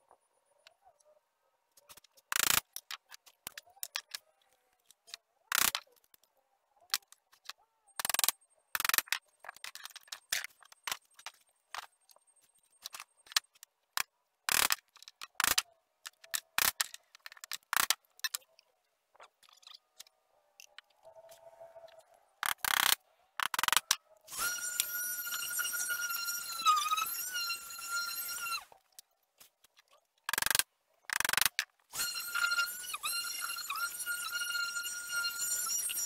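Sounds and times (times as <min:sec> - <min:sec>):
wooden tools clicking and knocking: 0:01.8 - 0:06.3, 0:06.9 - 0:27.2, 0:28.8 - 0:34.0
blade shaving wood: 0:21.2 - 0:29.5, 0:31.2 - 0:36.0.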